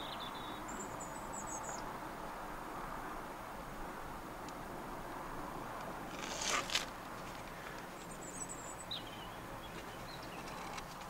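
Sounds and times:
faint high bird chirps: 0:00.0 - 0:01.9, 0:08.0 - 0:10.7
steady background hiss: 0:00.0 - 0:10.8.

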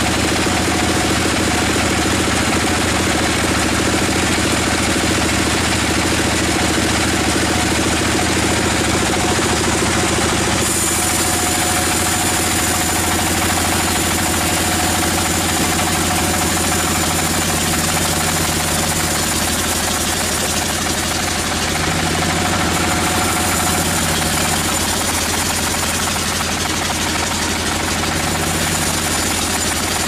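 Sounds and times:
band sawmill sawing log: 0:00.0 - 0:30.0.

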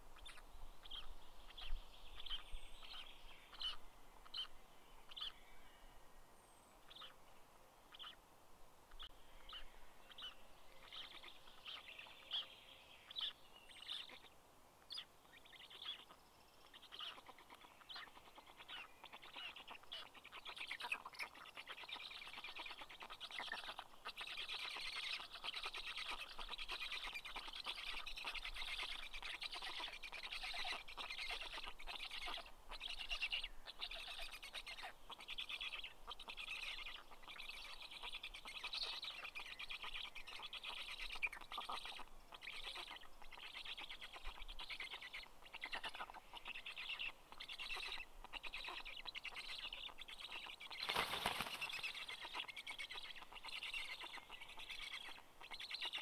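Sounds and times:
dense high bird chirping: 0:00.2 - 0:05.7, 0:08.9 - 0:14.3, 0:14.9 - 0:56.0
wings flapping: 0:50.8 - 0:52.1.

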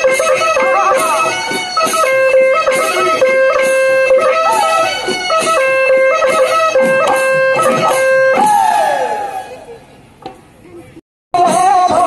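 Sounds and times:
drum strokes: 0:00.0 - 0:09.6
high sliding melody: 0:00.0 - 0:09.9.

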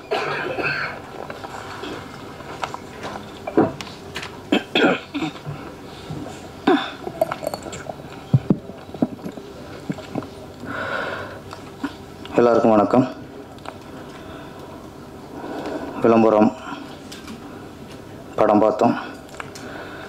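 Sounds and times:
person coughing: 0:00.0 - 0:01.0, 0:04.5 - 0:05.4, 0:06.6 - 0:07.4.

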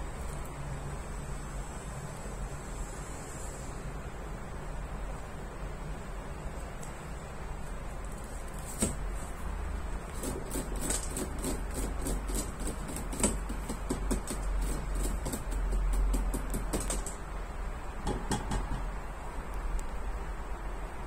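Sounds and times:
fingernails tapping on plastic: 0:10.2 - 0:17.2, 0:18.1 - 0:18.9.

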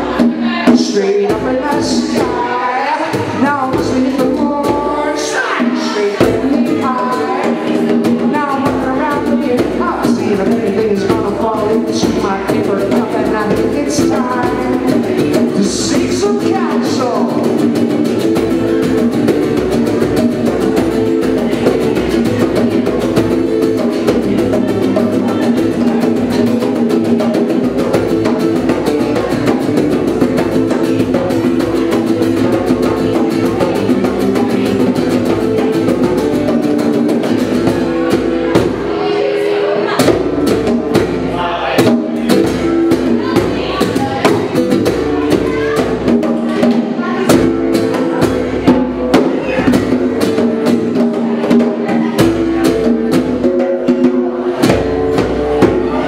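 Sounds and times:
man singing: 0:00.0 - 0:18.1
bongos: 0:00.0 - 0:56.0
guitar strumming: 0:00.0 - 0:56.0.

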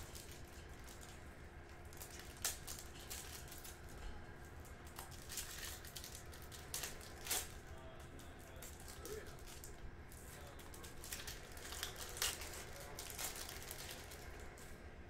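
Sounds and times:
foil wrapper crinkling: 0:00.0 - 0:14.8
cards rustling: 0:04.9 - 0:14.6.

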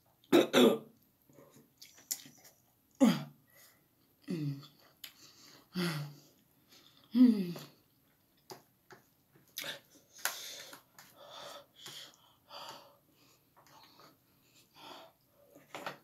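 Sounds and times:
person groaning: 0:03.0 - 0:03.3, 0:07.1 - 0:07.7.

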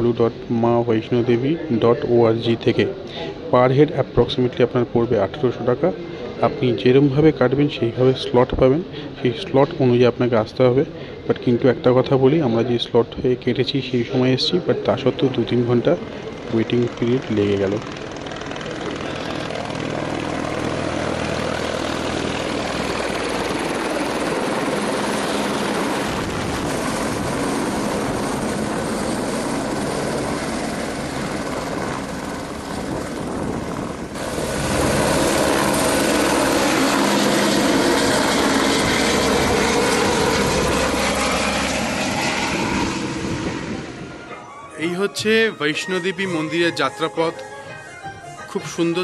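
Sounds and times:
helicopter rotor and turbine: 0:14.4 - 0:44.7.

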